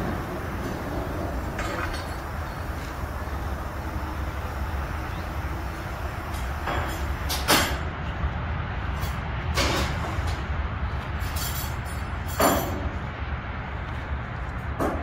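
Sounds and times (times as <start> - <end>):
large engine idling: 0.0 - 11.1.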